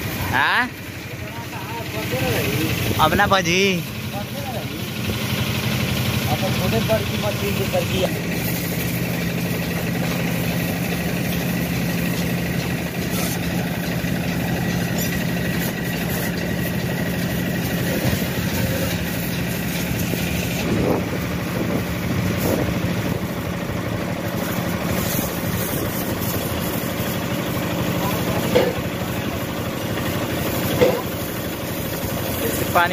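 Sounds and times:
pressure washer hum: 0.0s - 32.9s
water jet spraying hiss: 6.5s - 20.7s, 24.2s - 28.6s.

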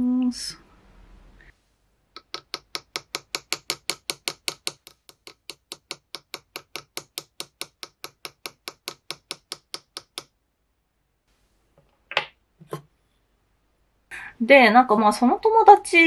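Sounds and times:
hammer tapping metal punch: 2.2s - 10.3s.

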